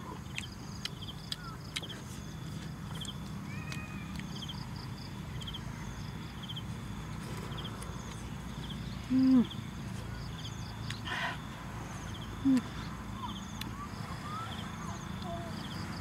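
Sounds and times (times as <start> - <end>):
low hoot-like tone: 12.3 - 15.6.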